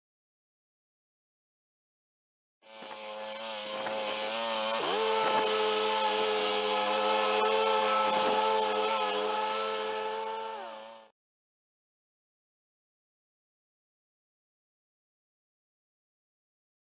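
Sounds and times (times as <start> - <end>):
riding mower engine running: 2.7 - 11.0.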